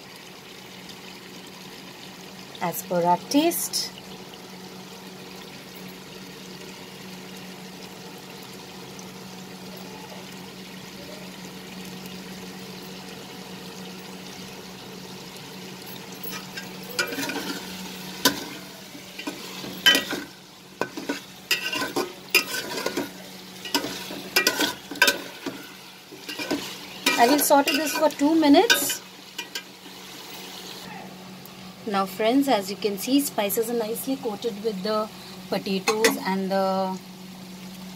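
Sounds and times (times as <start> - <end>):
food sizzling in a steel pot: 0.0 - 37.9
spatula scraping and knocking on pot: 19.2 - 23.1.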